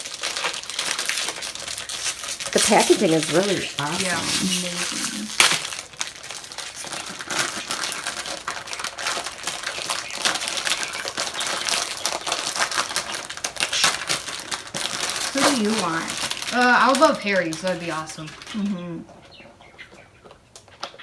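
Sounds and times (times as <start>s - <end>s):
cardboard box being torn open: 0.0s - 10.5s
cardboard snapping: 4.8s - 5.8s.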